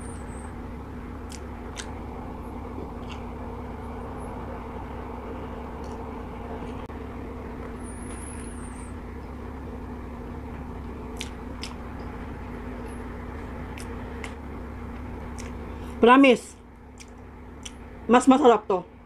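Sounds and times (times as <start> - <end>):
low background hum: 0.0 - 19.0
person chewing noodles: 3.0 - 3.2, 11.1 - 11.8.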